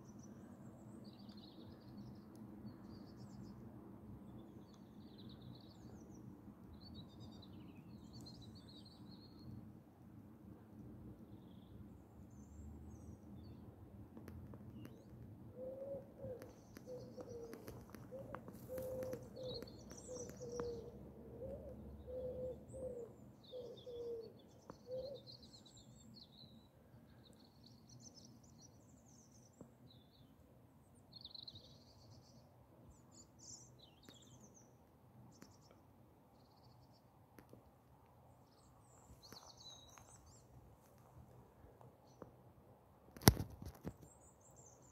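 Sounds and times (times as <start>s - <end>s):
small birds chirping: 14.5s - 30.3s, 31.1s - 37.6s, 38.4s - 42.4s, 43.2s - 44.9s
pigeon cooing: 15.6s - 24.3s.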